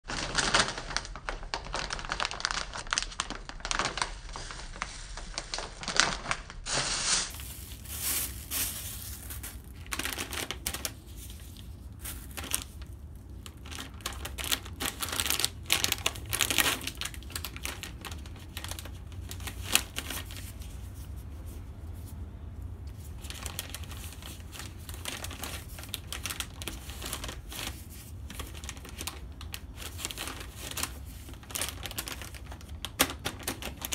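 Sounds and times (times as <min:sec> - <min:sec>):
plastic packet crinkling: 0:00.0 - 0:21.2, 0:22.9 - 0:33.9.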